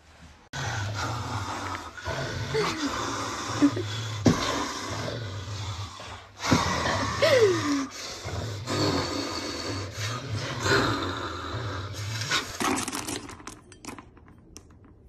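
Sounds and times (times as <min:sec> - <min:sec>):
dog growling and snarling: 0:00.5 - 0:13.0
man growling: 0:00.6 - 0:12.5.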